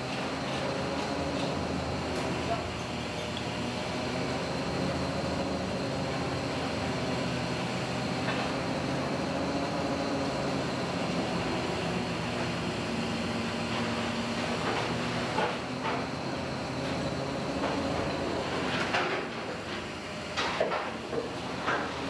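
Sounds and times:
boat engine and deck machinery drone: 0.0 - 22.0.

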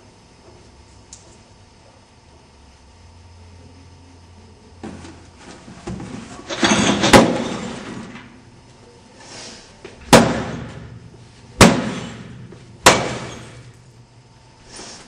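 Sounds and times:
loud sharp crashes with echo: 10.1 - 11.0, 11.6 - 13.6.

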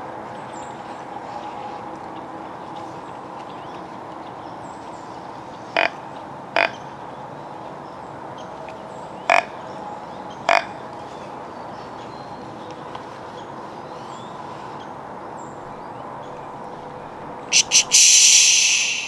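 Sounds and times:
harsh animal calls: 17.5 - 19.0.

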